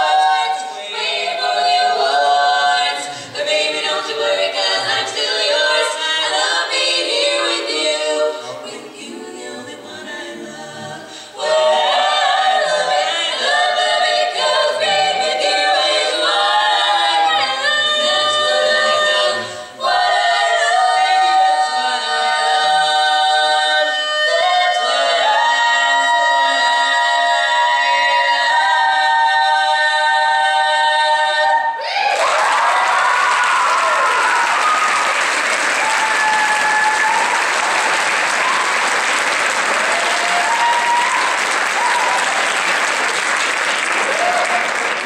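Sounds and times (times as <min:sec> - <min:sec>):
women singing in harmony: 0:00.0 - 0:33.1
audience applause and cheering: 0:32.0 - 0:45.0.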